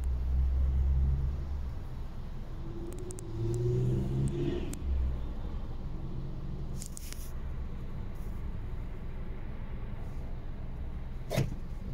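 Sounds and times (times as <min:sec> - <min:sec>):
road traffic rumble: 0:00.0 - 0:11.9
vehicle engine hum: 0:00.0 - 0:11.9.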